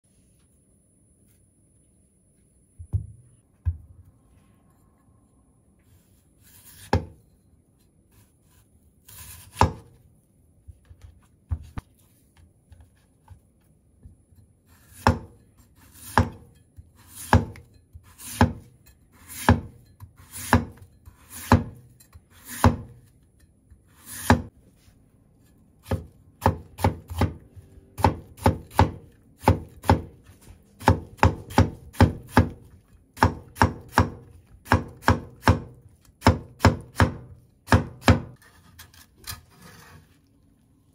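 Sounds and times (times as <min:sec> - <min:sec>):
cleaver chopping on wooden board: 0:25.8 - 0:27.4, 0:28.0 - 0:30.2, 0:30.8 - 0:32.6, 0:33.2 - 0:38.4.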